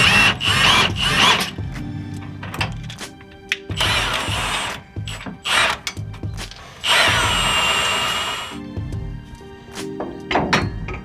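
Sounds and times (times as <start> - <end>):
impact wrench bursts: 0.0 - 1.5, 3.8 - 5.8, 6.8 - 8.6
background music: 0.0 - 11.0.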